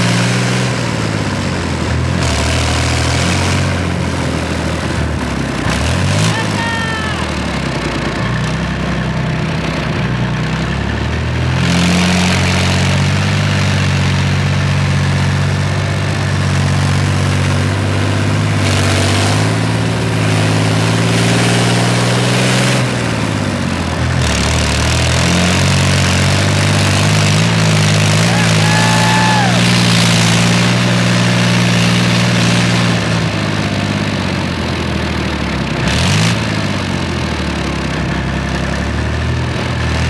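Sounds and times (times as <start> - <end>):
diesel engine running: 0.0 - 40.0.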